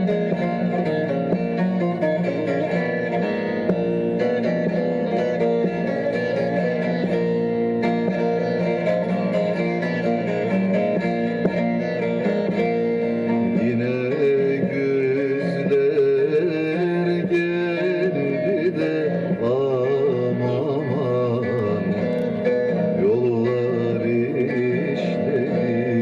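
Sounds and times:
plucked string instrumental music: 0:00.0 - 0:26.0.

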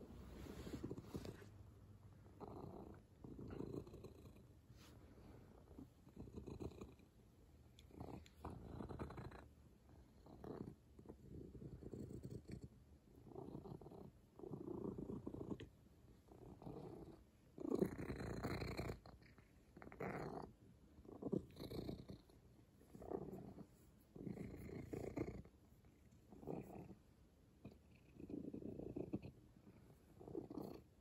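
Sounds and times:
cat purring: 0:00.0 - 0:31.0.

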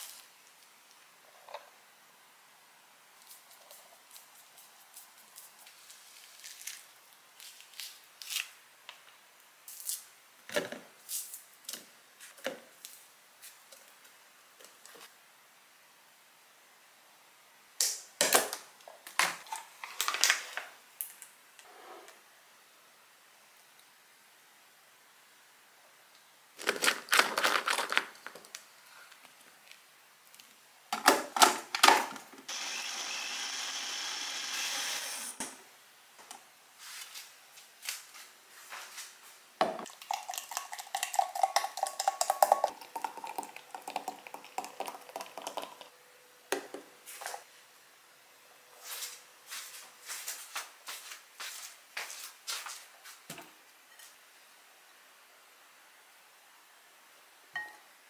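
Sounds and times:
small blender whirring: 0:32.5 - 0:35.4
glass and plate clinking: 0:57.6 - 0:57.8.

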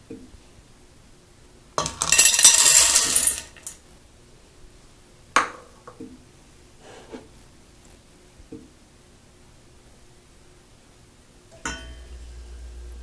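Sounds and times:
corn kernels clattering in saucepan: 0:01.8 - 0:03.8.

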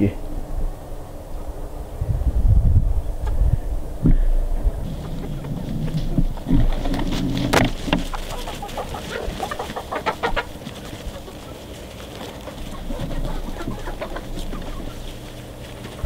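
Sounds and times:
low thumps: 0:00.0 - 0:09.6
hens clucking: 0:03.0 - 0:16.0.

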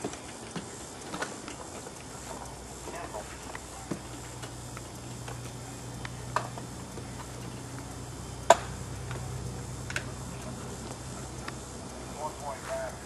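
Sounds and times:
rope and gear clicking: 0:00.0 - 0:13.0
steady low hum: 0:00.0 - 0:13.0.

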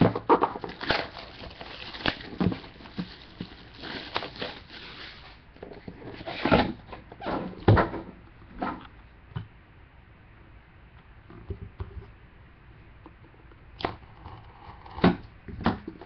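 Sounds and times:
box scraping: 0:00.0 - 0:07.6
cardboard rustling: 0:00.0 - 0:08.0.

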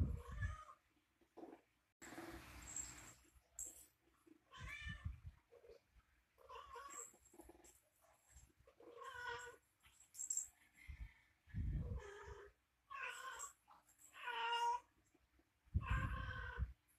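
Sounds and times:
cat meowing: 0:15.8 - 0:16.7.

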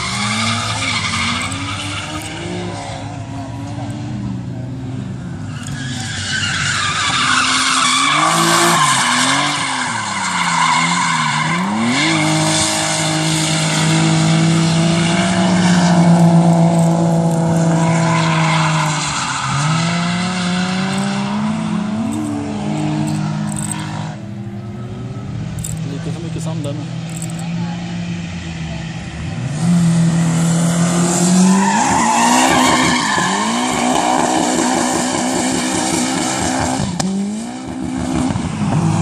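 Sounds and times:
tyres screeching: 0:00.0 - 0:03.3, 0:05.4 - 0:24.2, 0:31.4 - 0:35.5
car engine revving: 0:00.0 - 0:39.0.

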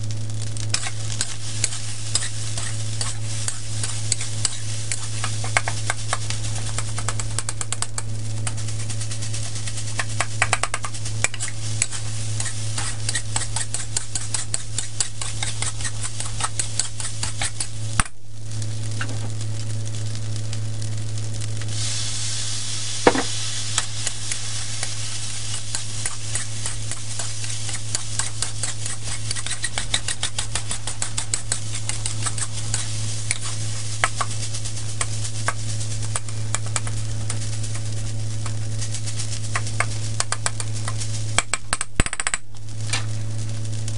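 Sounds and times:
low hum: 0:00.0 - 0:41.4
food sizzling: 0:00.0 - 0:43.9
metal spatula scraping a wok: 0:00.7 - 0:07.4, 0:11.2 - 0:17.8, 0:23.1 - 0:37.9.

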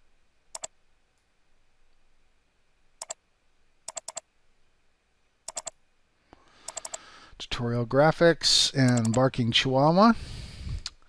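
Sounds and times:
mouse button clicking: 0:06.7 - 0:07.0.

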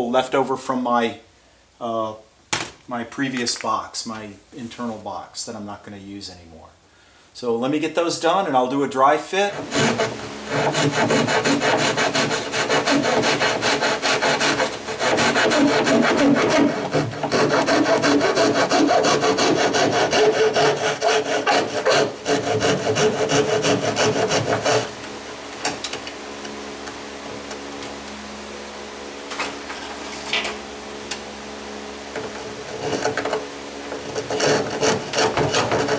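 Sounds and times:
hand tool rasping wood: 0:09.4 - 0:25.0, 0:32.1 - 0:35.9.

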